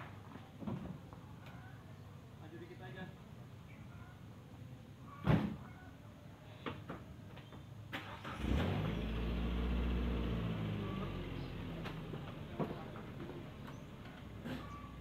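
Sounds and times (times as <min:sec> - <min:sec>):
truck engine starting and idling: 0:07.8 - 0:15.0.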